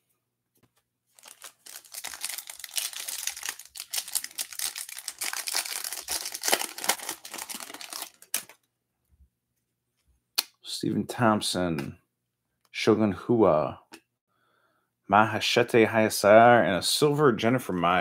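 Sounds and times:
foil wrapper tearing and crinkling: 1.2 - 8.6.

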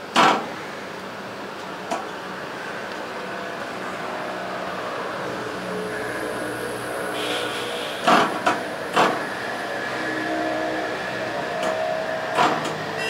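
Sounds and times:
machine humming: 2.1 - 13.0
faint tones: 2.8 - 13.0.

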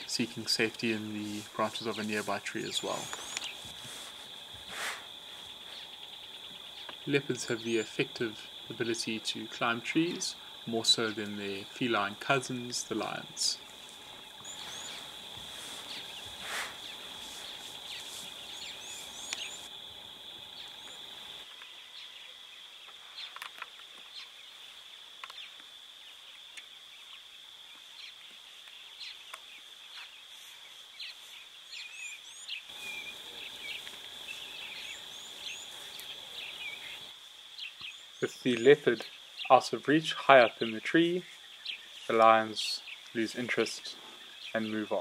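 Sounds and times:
insect drone: 0.0 - 45.0
bird chirps: 1.3 - 8.0, 13.5 - 19.7.

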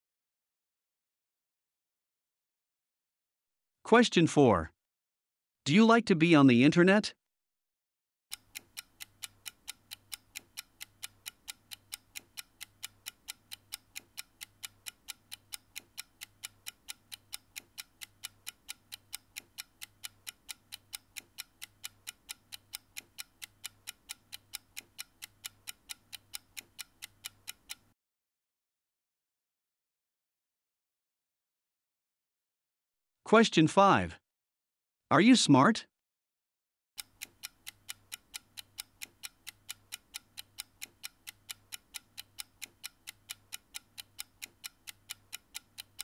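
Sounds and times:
clock ticking: 8.3 - 28.0, 37.0 - 46.0.

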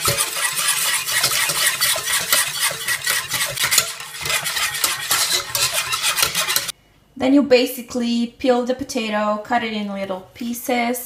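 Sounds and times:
wire whisk scraping a pan: 0.0 - 6.7.

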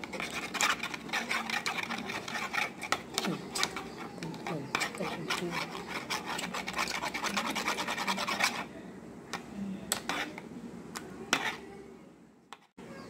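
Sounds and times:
metal spoon scraping plastic bowl: 0.0 - 8.7, 9.9 - 10.4, 11.3 - 11.7.

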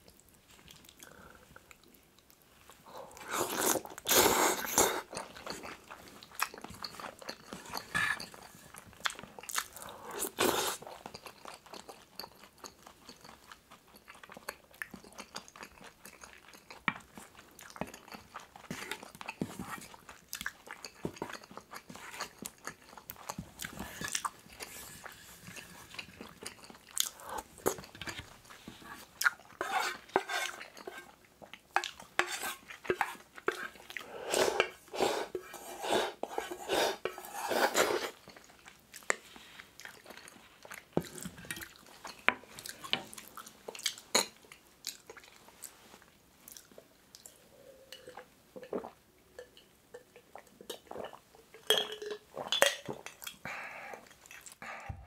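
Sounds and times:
close chewing: 0.0 - 35.4, 36.9 - 47.4
wooden spoon scraping metal pot: 29.6 - 31.2, 32.2 - 33.8, 34.4 - 38.2.

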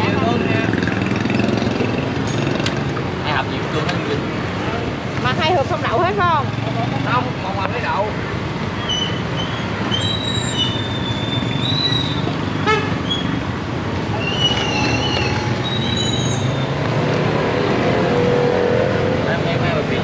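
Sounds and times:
motorbike traffic noise: 0.0 - 20.0
high thin squealing tones: 8.8 - 13.4, 14.1 - 16.8.

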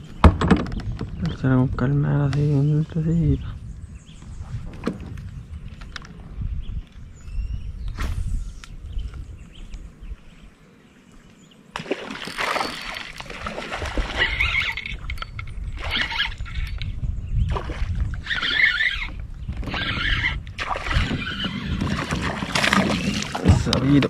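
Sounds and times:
water splashing against kayak: 11.8 - 14.9, 17.5 - 24.0.

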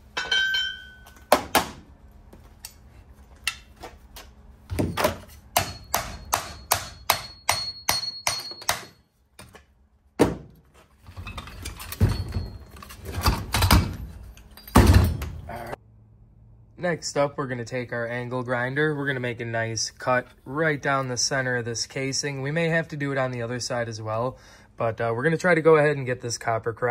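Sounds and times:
hatchet striking metal casing: 0.2 - 1.7, 4.8 - 9.0.

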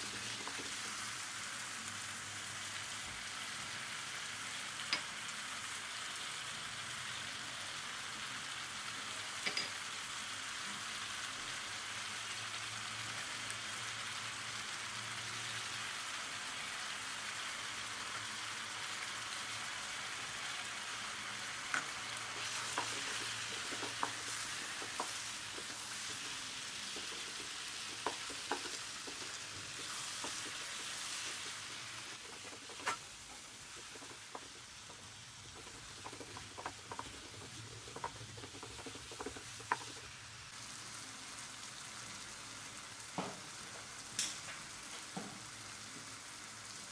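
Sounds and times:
food sizzling in a pan: 0.0 - 46.9
wooden spatula knocking on pan: 21.8 - 31.5, 32.3 - 40.1.

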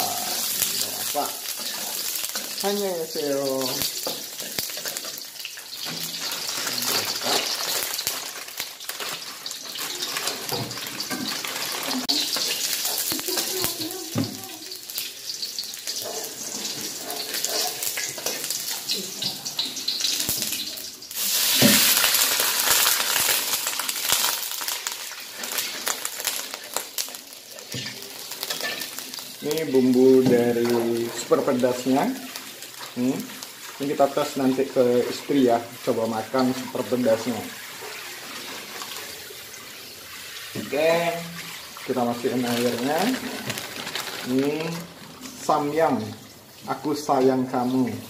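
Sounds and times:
metal spatula scraping wok: 0.0 - 8.2, 27.5 - 29.1
garlic sizzling in hot oil: 0.0 - 48.0
water hissing on hot wok: 0.0 - 48.0.

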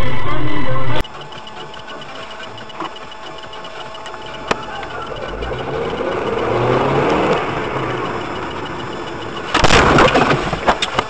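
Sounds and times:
vehicle engine and road noise: 0.0 - 11.0
car collision impact: 9.5 - 11.0.

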